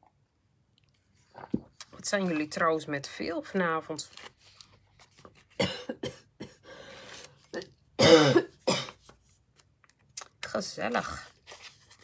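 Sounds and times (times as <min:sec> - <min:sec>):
paper rustling: 0:04.0 - 0:05.6, 0:10.6 - 0:12.0
woman coughing: 0:05.6 - 0:06.7, 0:08.0 - 0:09.0.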